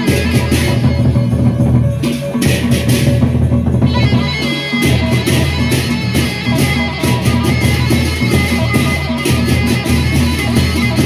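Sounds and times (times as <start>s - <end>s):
large barrel drums: 0.0s - 11.0s.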